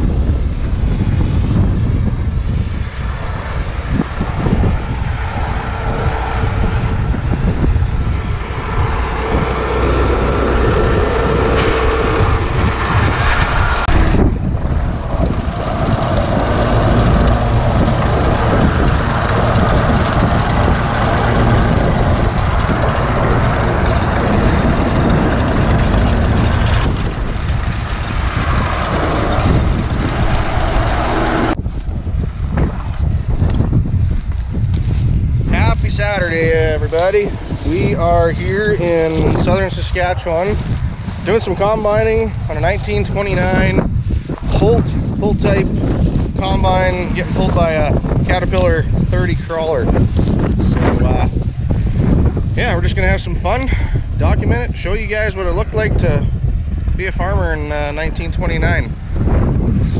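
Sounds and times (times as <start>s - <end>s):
combine harvester running: 3.2s - 31.6s, 35.7s - 43.6s.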